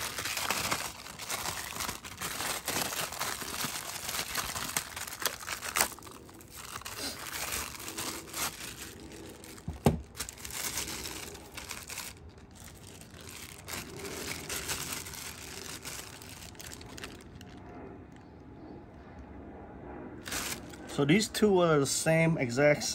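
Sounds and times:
plastic bags crinkling: 0.0s - 17.6s, 20.2s - 20.8s.

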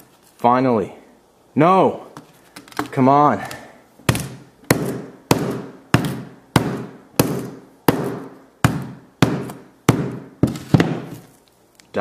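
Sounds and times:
sledgehammer smacking phone: 4.1s - 11.2s.

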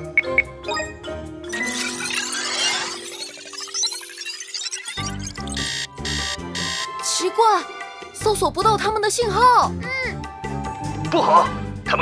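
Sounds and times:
background music: 0.0s - 12.0s
sparkling twinkle: 1.5s - 5.3s
electronic warning alarm beeping: 1.6s - 7.2s.

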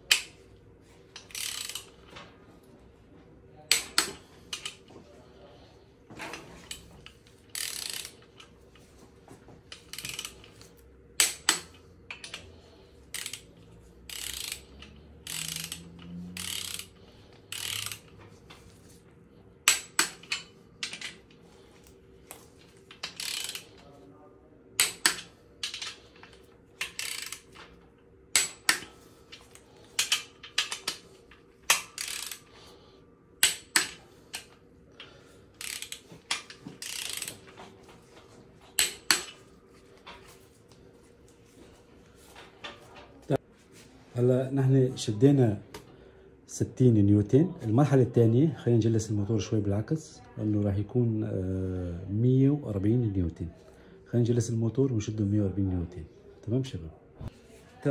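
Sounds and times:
ratchet wrench clicking: 0.1s - 0.4s, 1.2s - 2.1s, 3.7s - 4.8s, 6.7s - 8.5s, 9.7s - 12.5s, 13.1s - 18.2s, 19.6s - 21.2s, 22.9s - 23.8s, 24.8s - 27.7s, 28.3s - 31.1s, 31.7s - 32.5s, 33.4s - 37.5s, 38.8s - 39.4s.

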